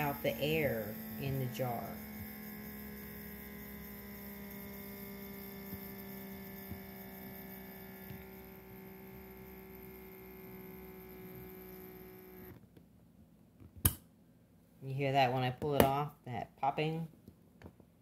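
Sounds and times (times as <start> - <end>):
vacuum sealer pump humming whine: 0.0 - 12.7.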